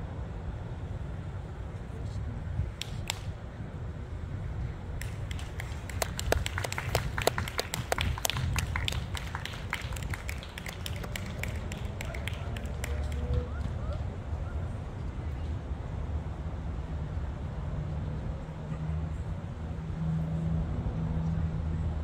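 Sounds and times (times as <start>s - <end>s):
wind rumble on microphone: 0.0s - 22.0s
people clapping: 2.8s - 3.3s, 5.0s - 14.2s.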